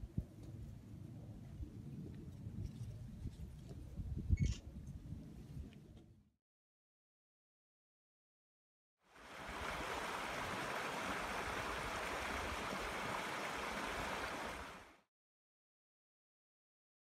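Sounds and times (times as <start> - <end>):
stream rushing over riffle: 9.1 - 15.0.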